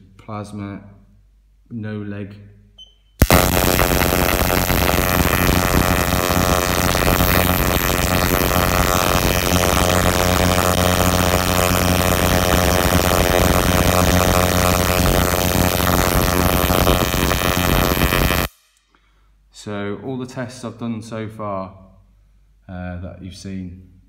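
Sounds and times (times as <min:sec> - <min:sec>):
electrical spark buzzing: 0:03.2 - 0:18.6.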